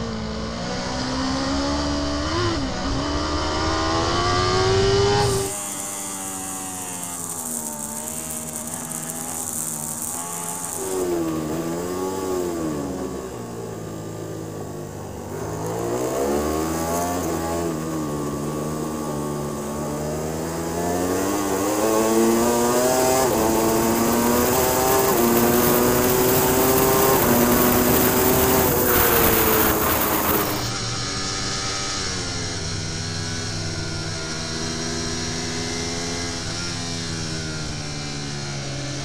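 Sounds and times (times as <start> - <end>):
motorcycle engine revving: 0.0 - 39.0
wind rush: 23.4 - 30.7.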